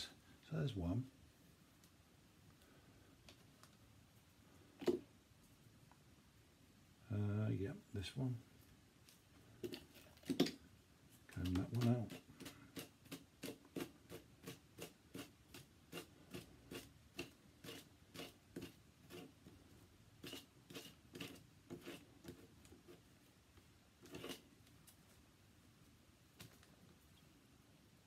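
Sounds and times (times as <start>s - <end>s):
comb strokes through cord strands: 11.1s - 26.7s.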